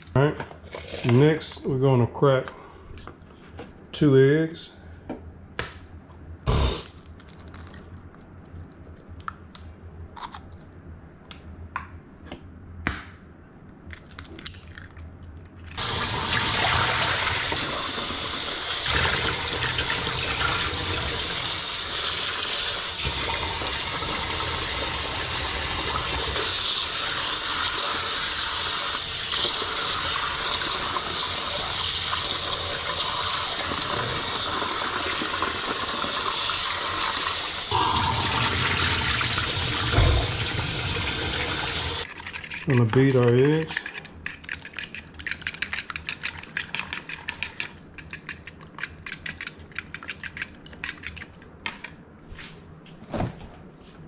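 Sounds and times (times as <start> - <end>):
eggshells cracking against bowl: 6.8 - 10.7, 13.6 - 15.8, 42.0 - 51.4.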